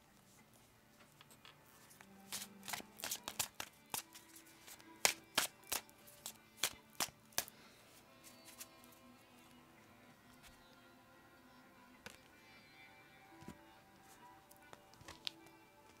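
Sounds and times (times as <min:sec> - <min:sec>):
soft background music: 0:00.0 - 0:16.0
cards being shuffled: 0:01.0 - 0:07.5, 0:08.2 - 0:09.0, 0:14.6 - 0:16.0.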